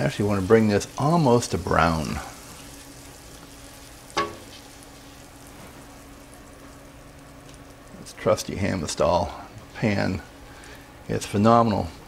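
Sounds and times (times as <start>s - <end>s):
butter sizzling in a frying pan: 0.0s - 9.2s.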